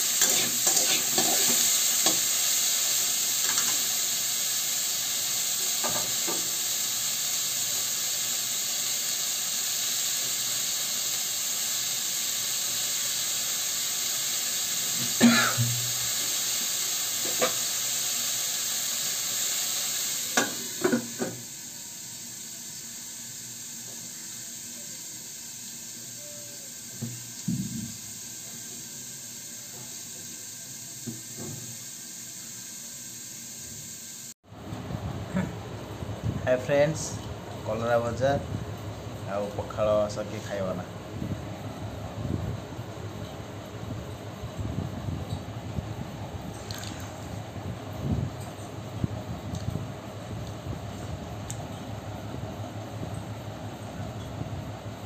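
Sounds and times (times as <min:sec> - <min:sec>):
vegetables sizzling in oil: 0:00.0 - 0:34.4.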